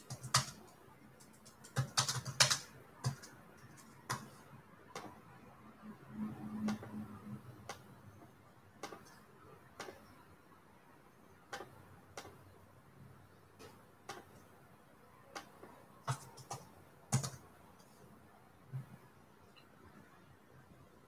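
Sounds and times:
keyboard and mouse clicks: 0.0s - 5.2s, 6.6s - 7.0s, 8.8s - 9.2s, 9.8s - 10.1s, 11.5s - 12.4s, 13.6s - 14.5s, 15.3s - 17.4s.

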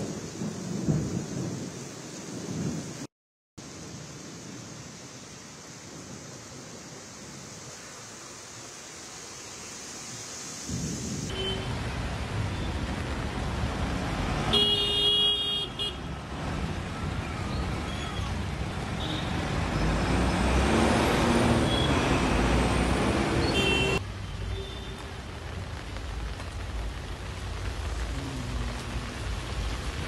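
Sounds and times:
steady rain hiss: 0.0s - 30.0s
car horn: 11.3s - 11.8s, 14.5s - 16.1s, 23.4s - 25.1s
cars driving through water: 16.0s - 23.6s
loud vehicle passing: 17.8s - 23.5s.

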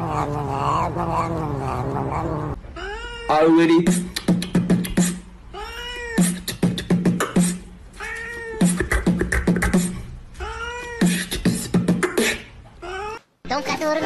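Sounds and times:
cat meowing: 0.0s - 3.5s, 5.5s - 6.3s, 8.0s - 8.7s, 10.4s - 11.1s
person beatboxing: 3.8s - 5.3s, 6.2s - 7.7s, 8.6s - 10.1s, 11.0s - 12.6s.

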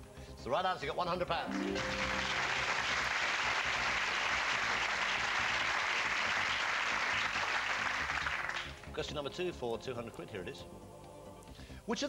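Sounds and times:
audience applauding: 1.5s - 9.0s.

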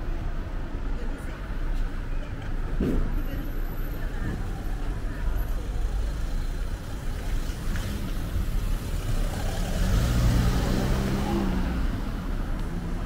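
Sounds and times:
street traffic hum: 0.0s - 13.0s
car passing by: 7.7s - 13.0s.

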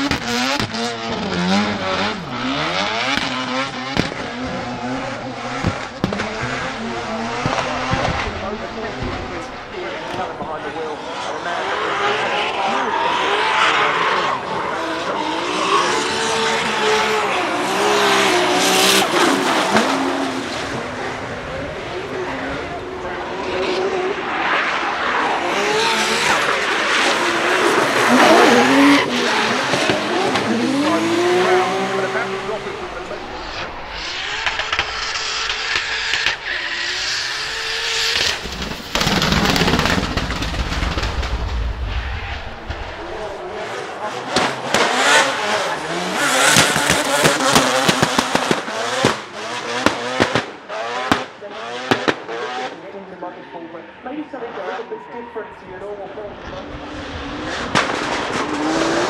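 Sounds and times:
car engine revving: 0.0s - 52.9s, 54.2s - 59.0s
exhaust pops and bangs: 3.0s - 4.6s, 5.5s - 10.6s, 32.8s - 43.5s, 44.3s - 45.0s, 46.4s - 51.3s, 57.7s - 58.6s.

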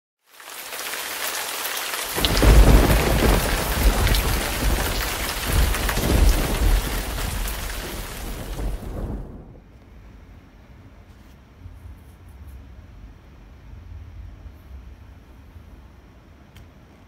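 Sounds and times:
heavy rain falling: 0.2s - 9.7s
thunder rumbling: 2.1s - 9.8s.

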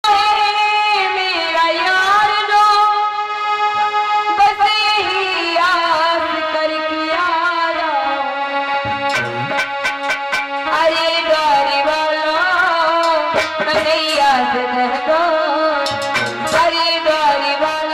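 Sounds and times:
woman singing devotional song: 0.0s - 3.5s, 4.2s - 8.8s, 10.6s - 15.9s, 16.5s - 17.9s
held instrumental notes: 8.4s - 17.2s
sharp drum strokes: 9.0s - 10.6s, 13.0s - 14.5s, 15.9s - 16.7s.

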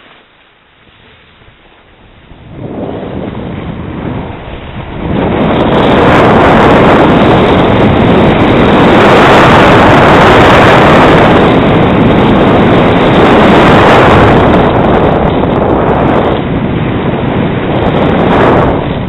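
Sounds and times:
skis sliding over snow: 0.0s - 8.8s
wind buffeting microphone: 0.0s - 19.0s.

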